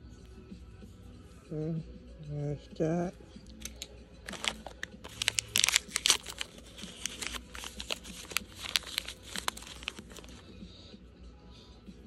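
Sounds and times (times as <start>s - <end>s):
wrapper crinkling and tearing: 3.6s - 10.4s.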